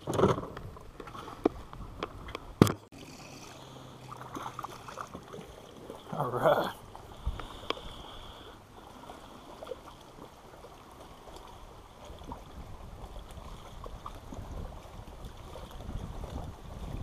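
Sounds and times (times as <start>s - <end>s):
water lapping against boat: 0.0s - 17.0s
faint ticks of fishing rod: 7.0s - 8.6s
wind rumble on microphone: 12.0s - 17.0s.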